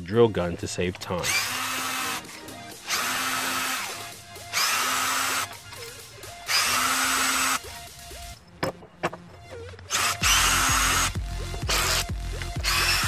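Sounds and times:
power drill spinning bolts: 0:00.6 - 0:13.0.

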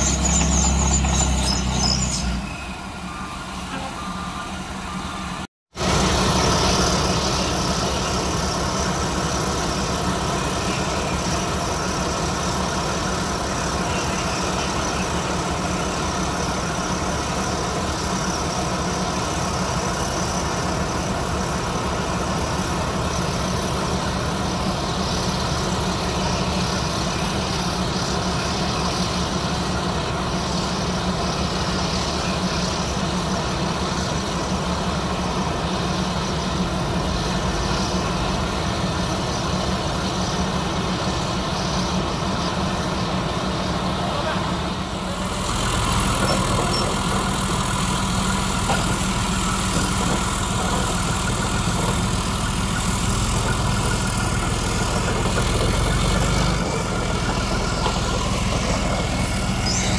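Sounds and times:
tank diesel engine running: 0:00.0 - 0:59.9.

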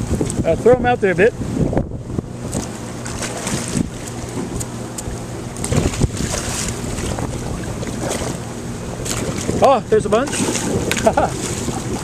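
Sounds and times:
steady low hum: 0:00.0 - 0:12.0
wind buffeting microphone: 0:00.0 - 0:12.0
fish splashing at water surface: 0:02.5 - 0:09.6, 0:10.2 - 0:12.0.

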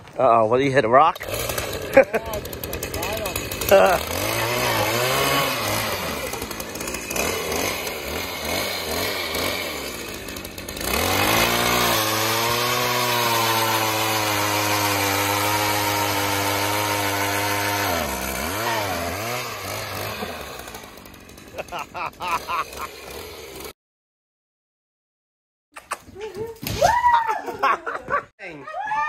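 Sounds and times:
ice auger engine drilling: 0:01.1 - 0:23.7.

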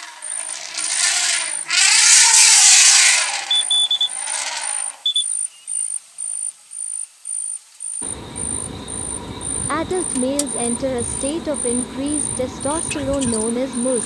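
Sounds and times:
elephant trumpeting: 0:00.0 - 0:06.4.

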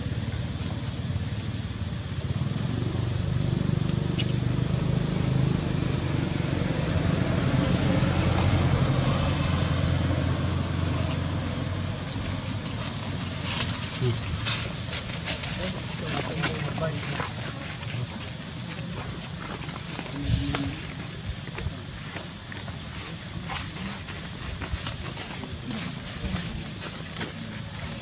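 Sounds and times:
steady high hiss: 0:00.0 - 0:28.0
vehicle engine rumble: 0:00.0 - 0:28.0.

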